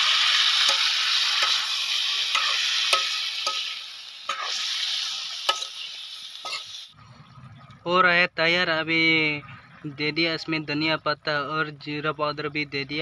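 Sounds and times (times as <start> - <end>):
metal spoon scraping a pan: 0.0 - 6.9
food sizzling in a wok: 0.0 - 7.0.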